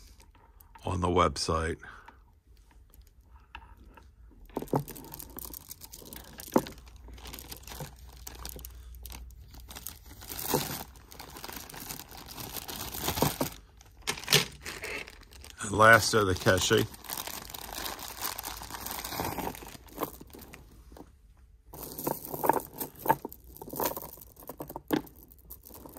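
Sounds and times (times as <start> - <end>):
plastic bag crinkling: 4.5 - 21.0, 21.7 - 25.9.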